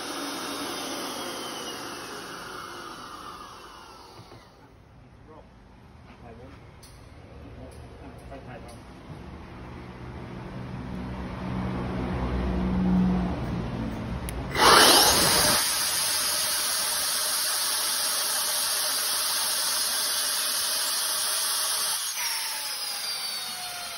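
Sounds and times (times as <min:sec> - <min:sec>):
electric compressor whining: 0:00.0 - 0:04.6, 0:14.4 - 0:23.9.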